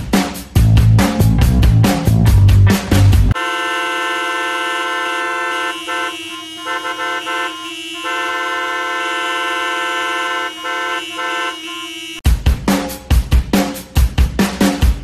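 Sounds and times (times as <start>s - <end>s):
car horns honking: 3.3s - 12.3s.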